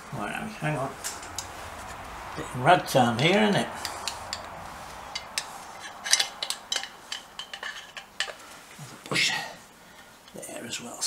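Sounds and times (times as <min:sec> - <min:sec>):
metallic clicks and clinks: 0:03.8 - 0:08.4.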